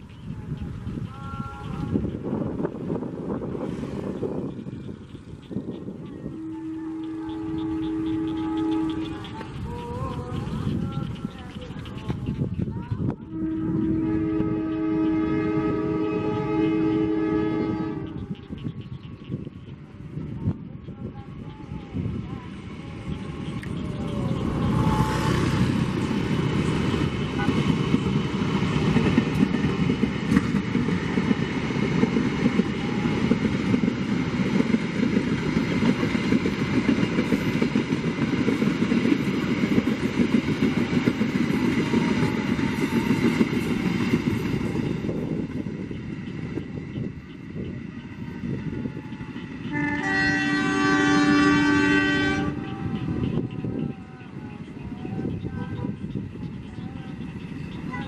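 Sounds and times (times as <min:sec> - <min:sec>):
locomotive engine rumble: 0:00.0 - 0:58.0
train wheel and rail noise: 0:00.0 - 0:58.0
train horn chord: 0:06.2 - 0:10.5, 0:13.2 - 0:18.6, 0:49.6 - 0:56.1.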